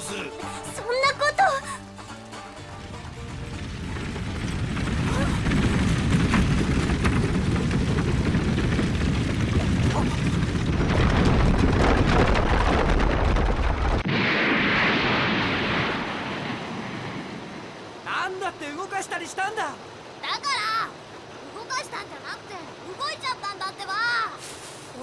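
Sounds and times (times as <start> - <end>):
deep continuous rumble: 2.6 - 14.1
loud hissing rush: 24.3 - 25.0.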